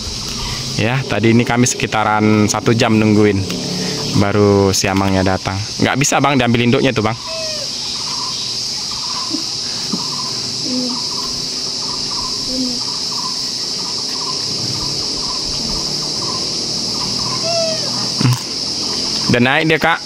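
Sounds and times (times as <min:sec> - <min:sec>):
high-pitched insect drone: 0:00.0 - 0:20.0.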